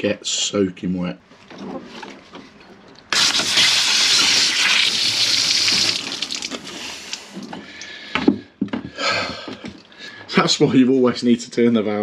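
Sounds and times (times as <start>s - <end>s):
water spraying with loud hiss: 3.1s - 7.2s.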